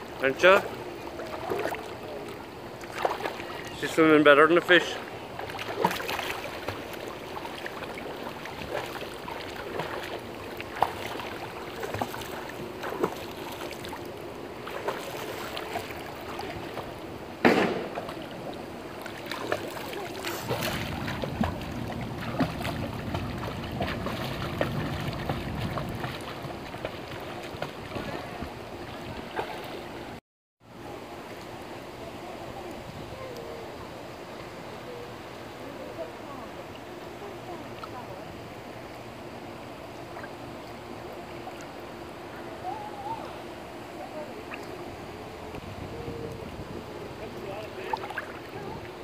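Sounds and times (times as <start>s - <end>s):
pool water splashing: 0.0s - 49.0s
sharp knock: 17.4s - 18.0s.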